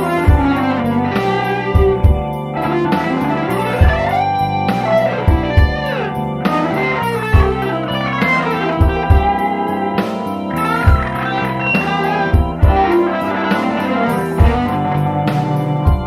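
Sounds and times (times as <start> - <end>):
bass and drum backing: 0.0 - 16.0
electric guitar lead lines: 0.0 - 16.0
kick drum: 1.8 - 2.3, 8.8 - 9.4, 10.9 - 11.2, 12.4 - 12.9, 14.4 - 14.7.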